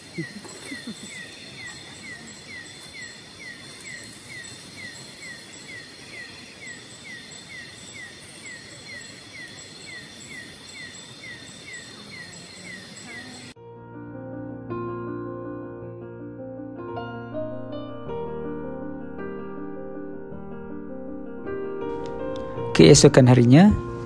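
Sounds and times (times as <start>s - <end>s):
high insect buzz: 0.0s - 13.6s.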